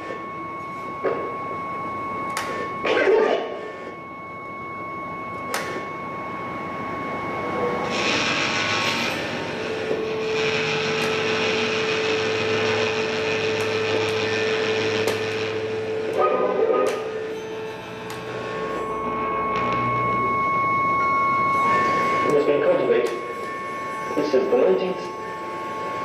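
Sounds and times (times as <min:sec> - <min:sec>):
steady sustained tone: 0:00.0 - 0:26.0
low hum: 0:00.2 - 0:26.0
held high tone: 0:09.4 - 0:26.0.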